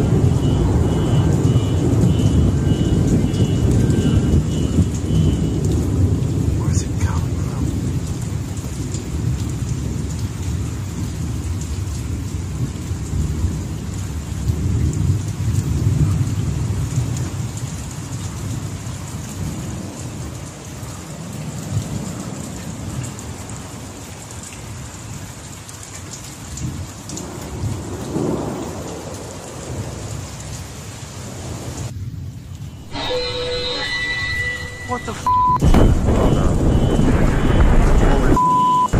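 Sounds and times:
rolling thunder rumble: 0.0 - 17.8, 26.6 - 30.3, 35.2 - 38.9
rain hiss: 0.0 - 38.4.

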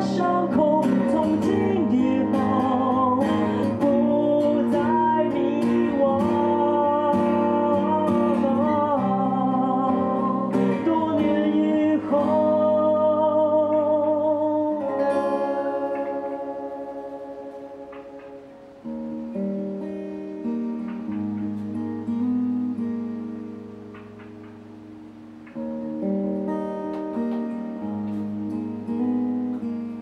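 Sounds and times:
man singing: 0.0 - 16.3
strummed acoustic guitar: 0.0 - 30.0.

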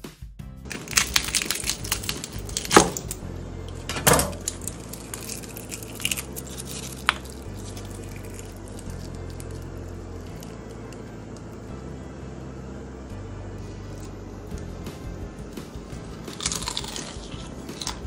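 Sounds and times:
crispy wrap crackling and crunching: 0.7 - 11.7, 15.6 - 18.0.

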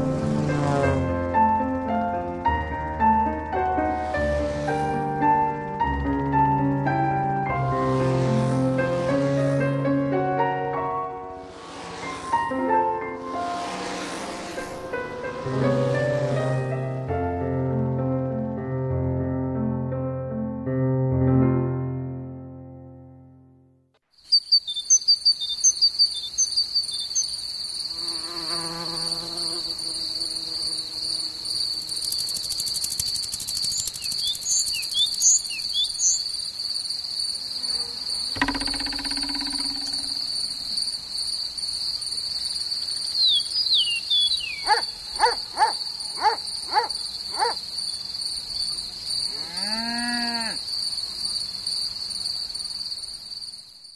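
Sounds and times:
insect chirps and buzzes: 24.0 - 53.9
cricket chirring: 24.1 - 53.9.

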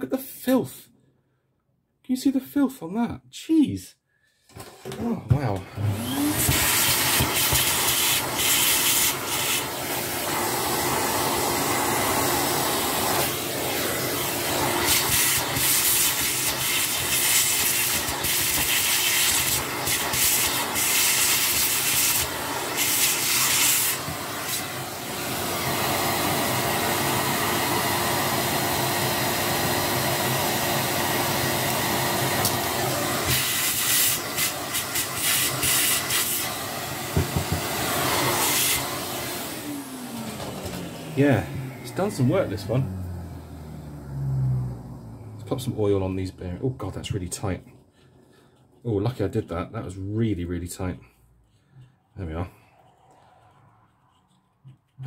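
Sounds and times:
vacuum nozzle hissing: 4.5 - 43.4
vacuum cleaner running: 4.5 - 46.2.

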